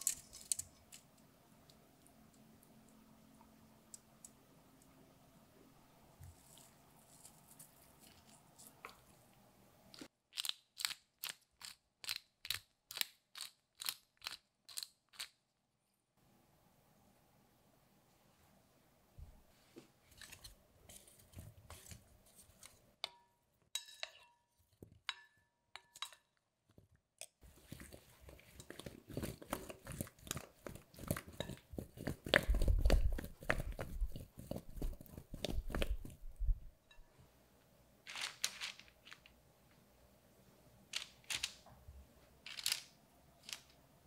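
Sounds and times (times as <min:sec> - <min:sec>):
potatoes rattling in glass bowl: 0:38.1 - 0:39.2.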